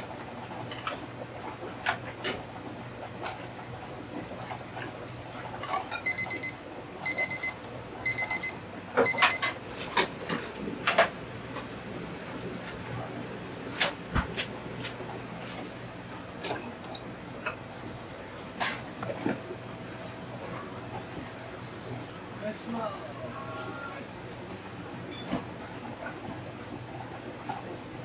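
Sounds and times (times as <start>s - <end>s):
kitchen timer beeping: 5.9s - 9.6s
utensils and dishes clattering: 9.0s - 11.1s, 18.6s - 19.4s.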